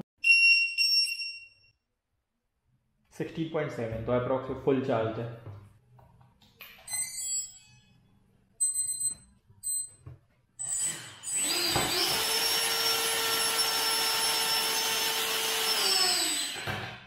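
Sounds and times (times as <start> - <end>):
short electronic beeps: 8.6 - 10.0.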